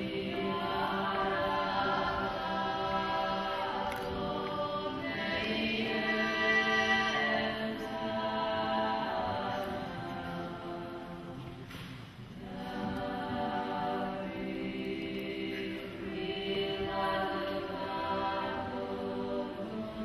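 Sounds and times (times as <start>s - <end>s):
women's choir singing a cappella: 0.0s - 20.0s.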